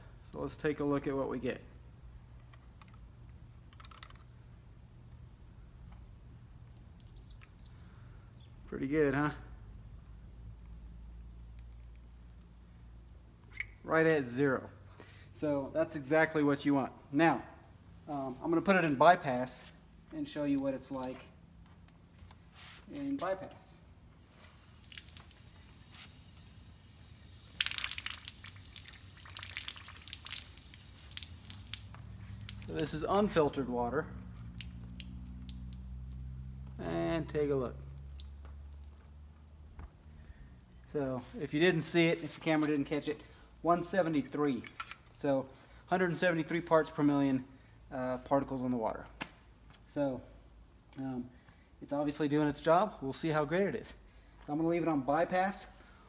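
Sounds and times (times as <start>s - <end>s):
low steady hum: 0.0s - 52.0s
water splashing onto concrete: 24.8s - 25.5s, 26.2s - 39.2s.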